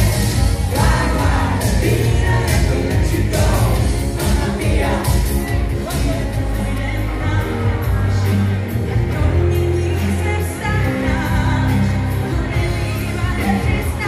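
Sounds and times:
steady drum beat: 0.0s - 6.5s
bass notes: 0.0s - 14.0s
keyboards: 0.0s - 14.0s
woman singing: 0.0s - 14.0s.

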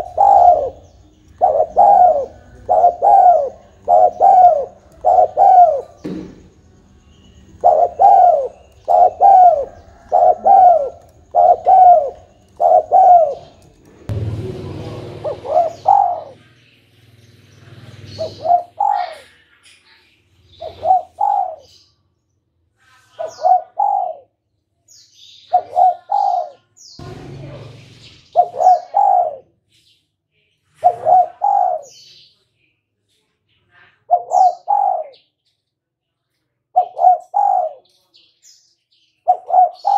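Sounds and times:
dove cooing: 0.0s - 6.5s, 7.5s - 16.4s, 17.8s - 19.4s, 20.6s - 21.7s, 23.2s - 24.3s, 25.5s - 29.5s, 30.8s - 32.0s, 34.1s - 35.2s, 36.8s - 37.8s, 39.3s - 39.9s.

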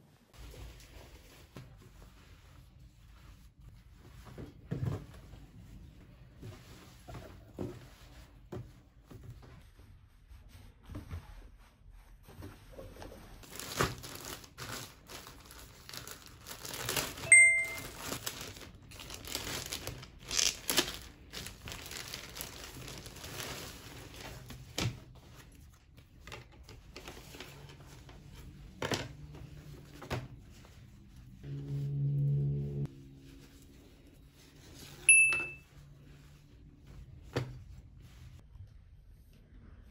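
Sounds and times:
plastic packaging crinkling: 13.4s - 24.6s.

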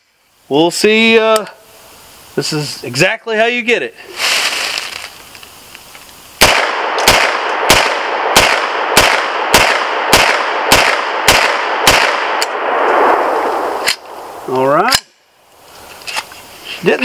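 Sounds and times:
pistol gunshots ringing: 6.4s - 12.7s.

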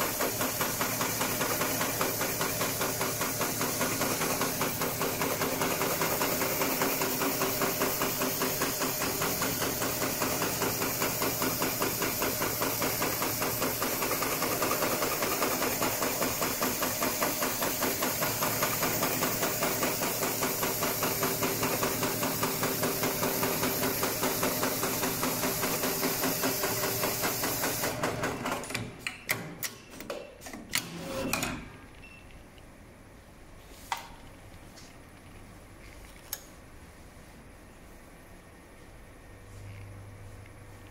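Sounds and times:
sewing machine stitching: 0.0s - 28.9s
sewing machine clicks and clacks: 0.0s - 31.5s.

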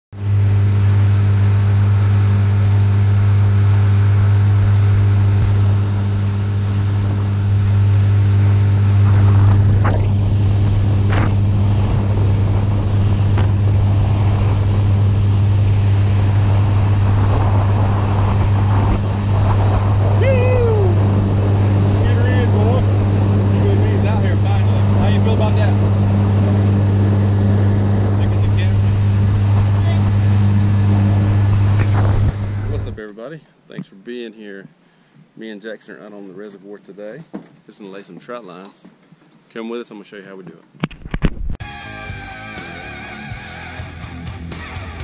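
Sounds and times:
outboard motor running: 0.1s - 33.0s
wind: 0.1s - 42.1s.

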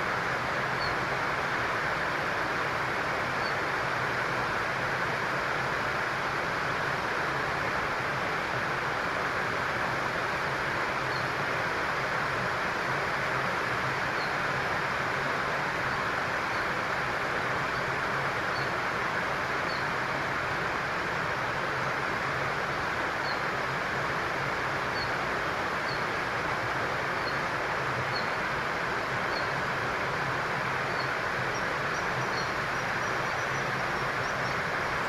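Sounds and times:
rushing outdoor background noise: 0.0s - 35.0s
faint high bird chirps: 14.2s - 14.4s, 23.2s - 23.4s, 28.1s - 28.4s, 29.3s - 29.6s, 30.9s - 35.0s.

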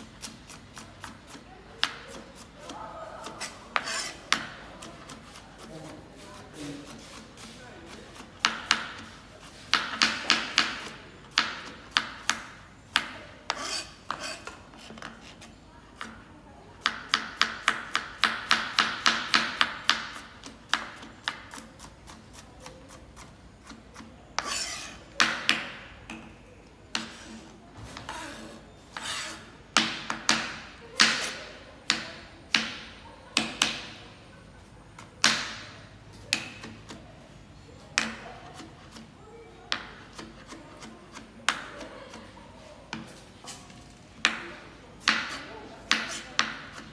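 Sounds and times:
knife chopping on plastic board: 16.8s - 23.3s, 35.0s - 35.7s, 38.0s - 39.1s, 45.0s - 46.9s.

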